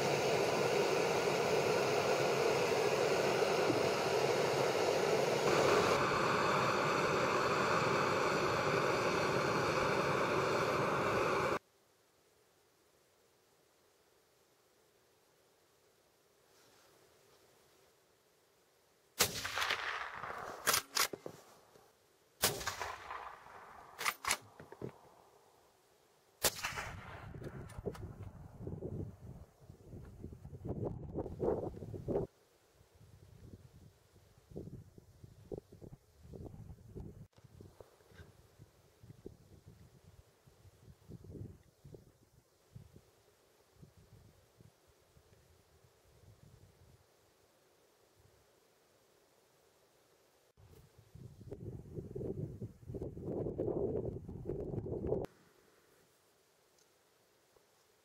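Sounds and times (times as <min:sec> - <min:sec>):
camping stove burner hissing: 0:00.0 - 0:11.6
rifle shots: 0:19.2 - 0:21.1, 0:22.4 - 0:24.6, 0:26.4 - 0:27.8.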